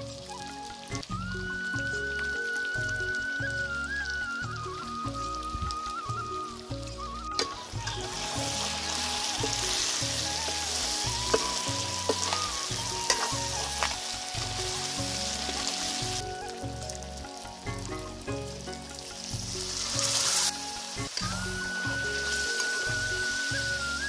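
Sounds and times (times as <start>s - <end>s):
curry sizzling in a wok: 0.0s - 24.0s
ladle scraping and knocking pan: 7.4s - 13.9s.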